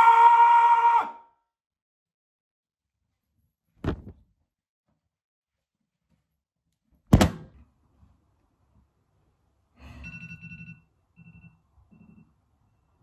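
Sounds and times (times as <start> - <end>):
loud thud: 3.8 - 4.2
phone ringing: 10.0 - 12.3.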